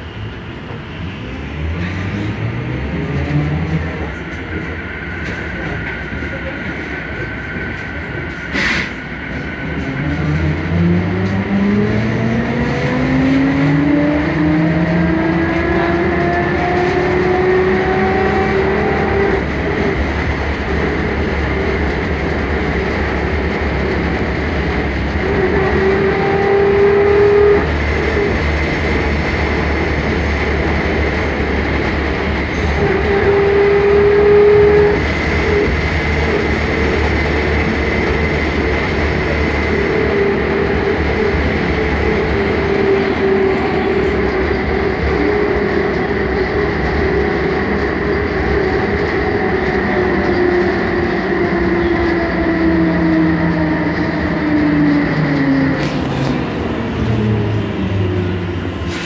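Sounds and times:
trolleybus ride rumble: 0.0 - 59.0.

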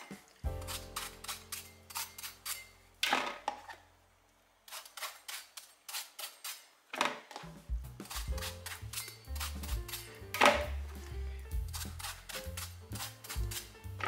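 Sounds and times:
knife cutting eggplant: 0.0 - 2.7, 7.9 - 14.0.

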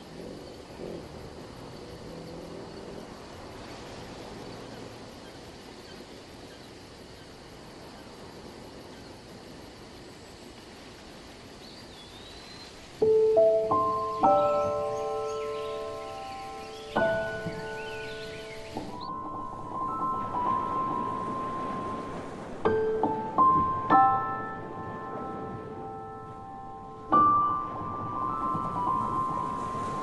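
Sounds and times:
music with chiming mallet tones: 13.6 - 22.0.

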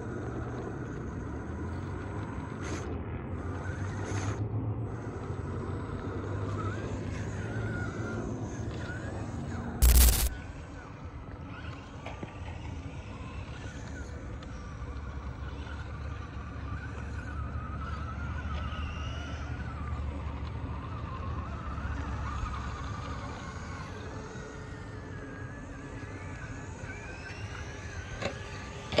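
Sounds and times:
electric motor and gears whining: 0.0 - 29.0
short loud burst of noise: 9.8 - 10.4.

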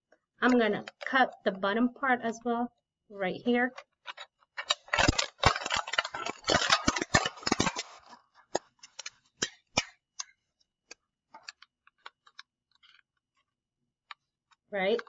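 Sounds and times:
scissors cutting plastic bottle: 4.1 - 10.3.

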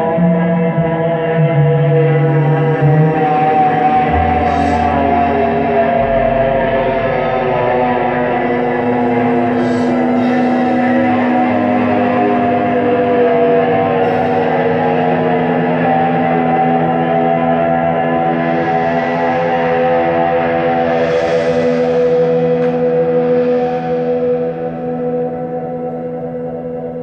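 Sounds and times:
rock band droning chords: 0.0 - 27.0
deep bass tone: 1.4 - 18.0.

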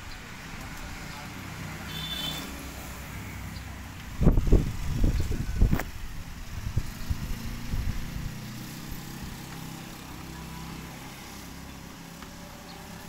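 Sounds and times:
wind buffeting microphone: 4.0 - 8.5.

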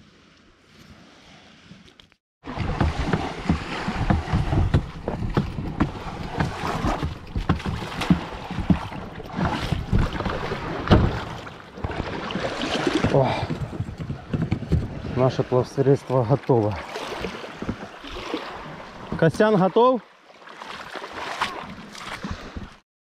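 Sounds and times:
gear knocking and clattering: 3.6 - 11.2.

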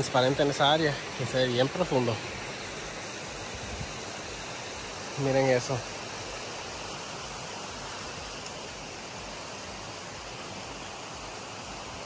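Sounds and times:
flowing water rushing: 0.0 - 12.0.

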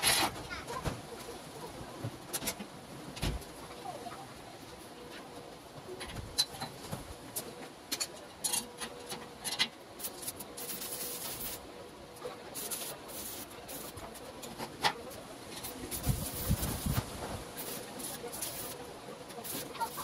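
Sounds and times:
hiss: 15.7 - 18.8.

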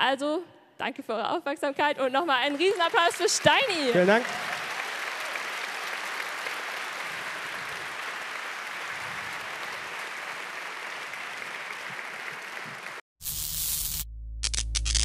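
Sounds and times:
audience applauding: 1.8 - 13.0.

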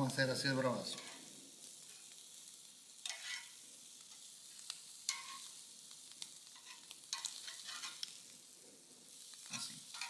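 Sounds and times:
shrimp sizzling on a grill: 0.0 - 10.0
tongs clicking against grate: 6.6 - 8.1.

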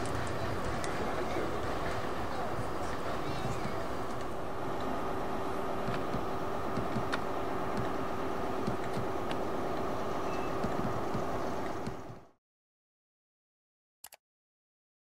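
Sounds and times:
faint steady tone: 0.0 - 12.3
diesel locomotive running: 0.0 - 12.4.

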